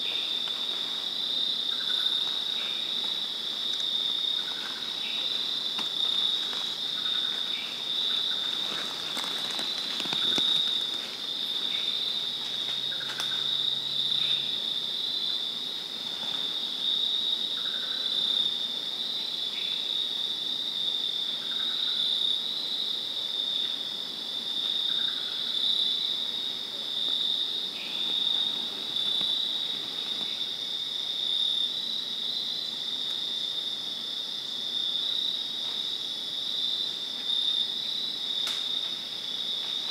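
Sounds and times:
insect pulsing trill: 0:00.0 - 0:15.5
softer lower insect calls: 0:00.0 - 0:39.9.

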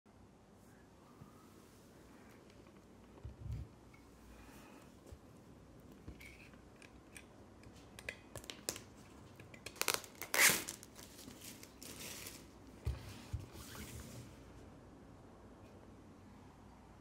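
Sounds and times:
plastic wrap crackling and crinkling: 0:08.1 - 0:12.8
cutter slitting shrink wrap: 0:09.6 - 0:12.5.

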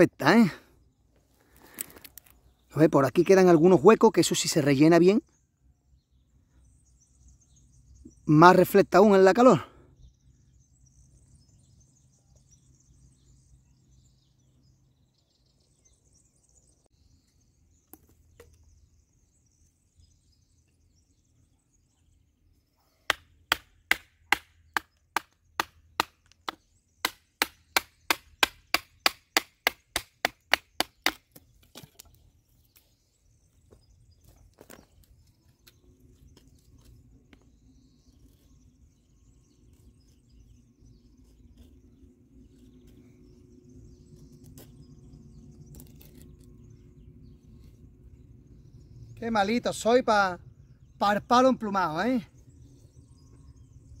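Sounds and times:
blade chopping wood: 0:23.1 - 0:32.1.

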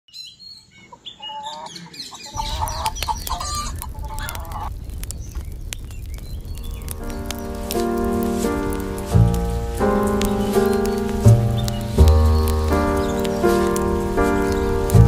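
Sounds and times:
hens clucking: 0:00.8 - 0:04.7
low rumbling noise: 0:02.3 - 0:15.0
sharp clicks: 0:02.4 - 0:15.0.

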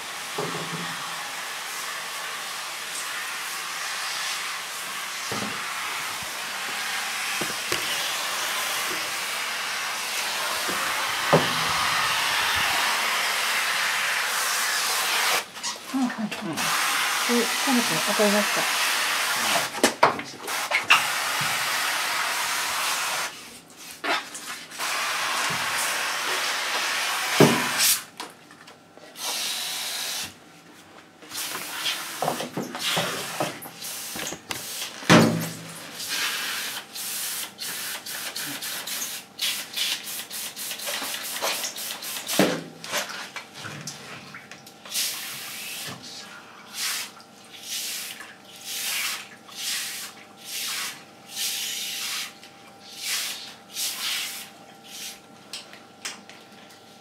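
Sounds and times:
water spraying in hissing bursts: 0:00.0 - 0:19.7, 0:24.7 - 0:28.0, 0:35.9 - 0:42.4, 0:44.9 - 0:46.1, 0:46.7 - 0:55.2.

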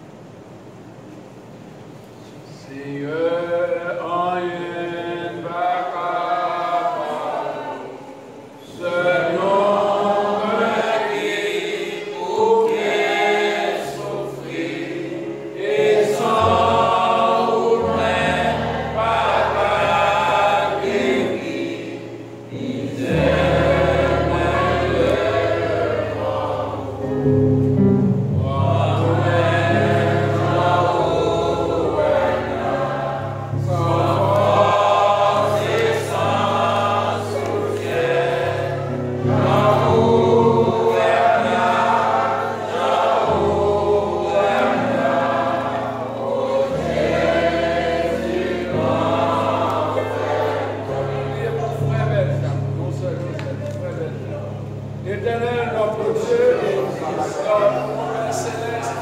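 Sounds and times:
group singing a hymn: 0:02.6 - 0:59.0
sustained low bass notes: 0:22.6 - 0:35.4.

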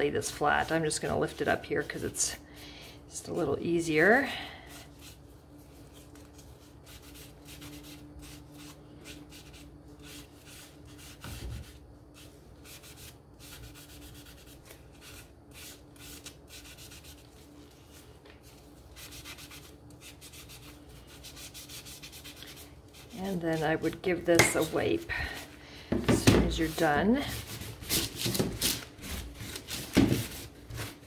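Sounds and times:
foam brush rubbing wood: 0:26.4 - 0:28.2.

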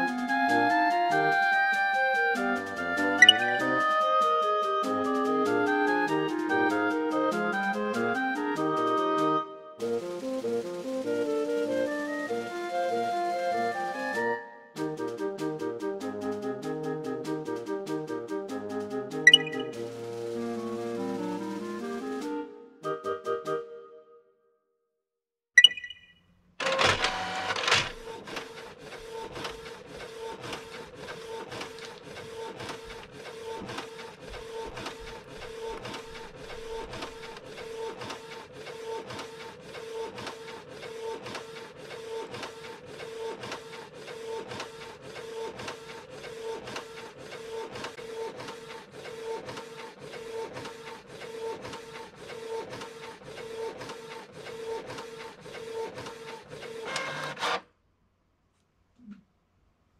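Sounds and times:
inkjet printer whirring: 0:26.6 - 0:57.6.

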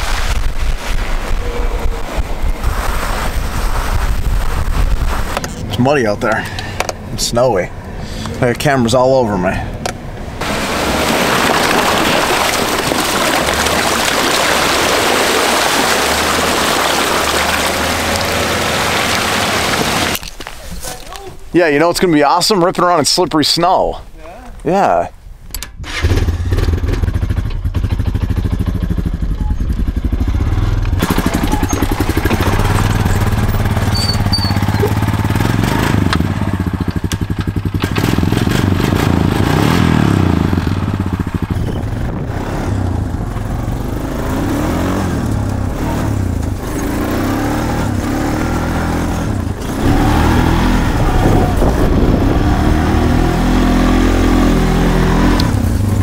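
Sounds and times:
atv engine revving: 0:13.2 - 0:20.2, 0:25.8 - 0:56.0.

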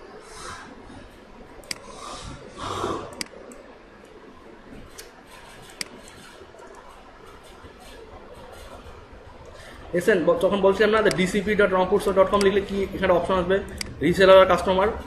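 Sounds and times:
breath into microphone: 0:01.8 - 0:03.1, 0:09.6 - 0:09.9
mouse and keyboard clicks: 0:04.9 - 0:09.0.

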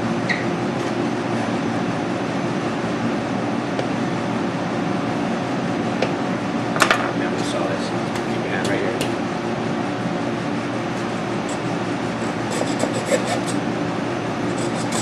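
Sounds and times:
air-handling machinery hum: 0:00.0 - 0:15.0.

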